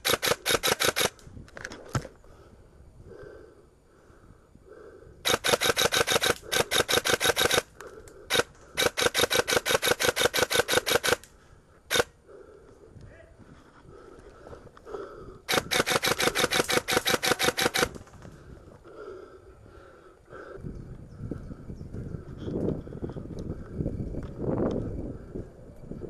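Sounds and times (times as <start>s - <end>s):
airsoft rifle full-auto bursts: 0.0s - 1.2s, 5.3s - 7.7s, 8.3s - 11.3s, 11.9s - 12.1s, 15.5s - 18.0s.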